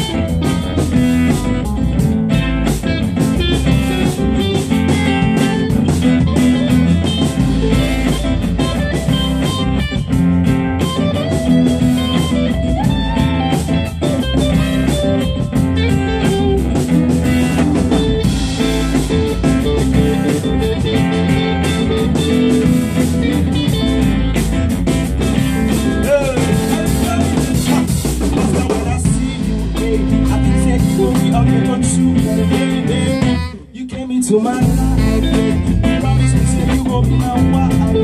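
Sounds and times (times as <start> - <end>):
drum kit beat: 0.0 - 38.0
electric bass: 0.0 - 38.0
guitars: 0.0 - 38.0
saxophone: 2.3 - 25.4, 32.2 - 33.9, 34.6 - 38.0.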